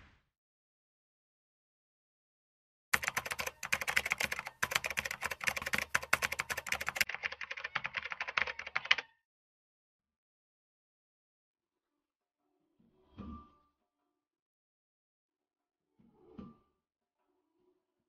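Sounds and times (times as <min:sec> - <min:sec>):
keyboard typing clicks: 0:03.0 - 0:09.0.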